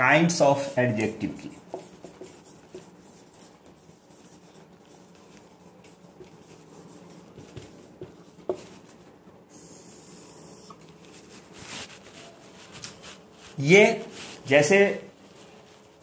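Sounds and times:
marker pen writing on whiteboard: 0.5 - 11.5
marker tapping on whiteboard: 1.0 - 2.9, 7.3 - 8.8.

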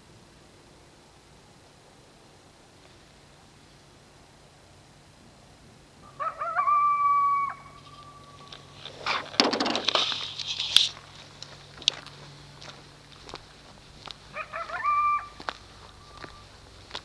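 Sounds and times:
coyotes yipping and howling: 6.0 - 9.4, 13.4 - 17.0.

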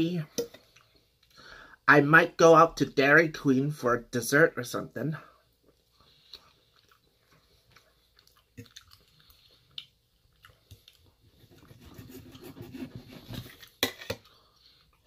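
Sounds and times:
soft chewing: 5.4 - 15.0
cutlery clinking on metal bowl: 13.4 - 14.2.

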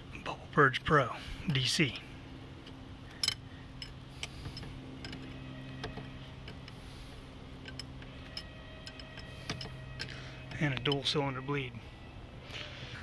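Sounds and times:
steady low hum: 0.0 - 13.0
wrench clicking on metal fitting: 7.6 - 11.1.

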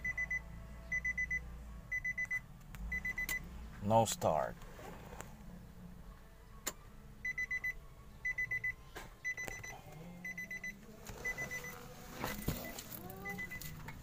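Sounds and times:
car warning beeper bursts: 0.0 - 3.5, 7.2 - 13.8.

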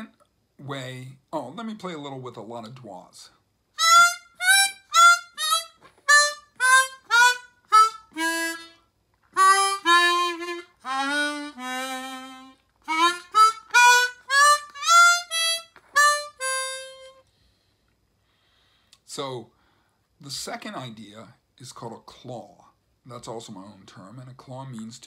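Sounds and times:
harmonica playing blues: 3.8 - 17.2.

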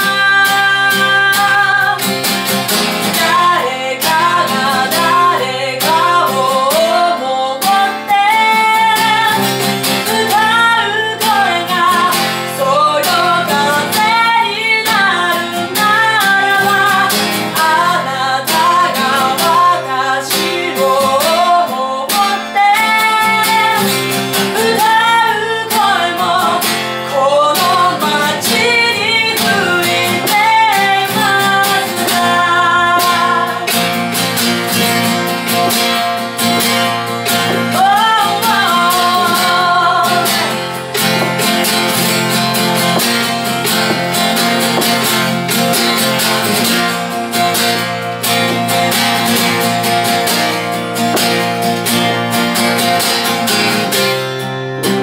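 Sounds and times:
woman singing: 0.0 - 54.1
acoustic guitar strumming: 0.0 - 55.0.

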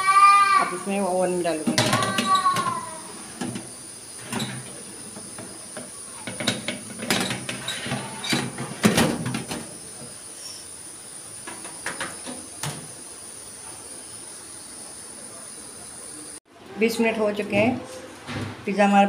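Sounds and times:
metal baking tray clattering: 6.2 - 9.7.

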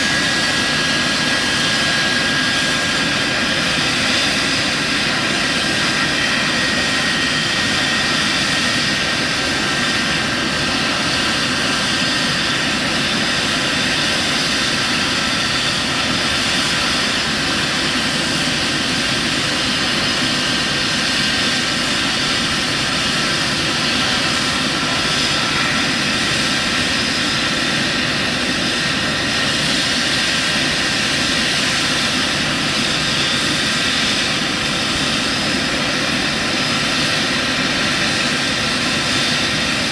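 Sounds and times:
helicopter engines and rotors running: 0.0 - 39.9.

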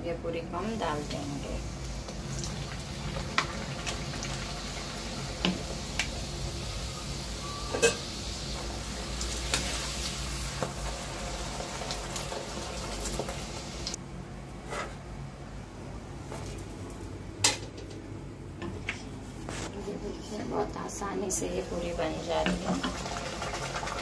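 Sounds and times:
oil sizzling: 0.7 - 14.0, 21.4 - 24.0.

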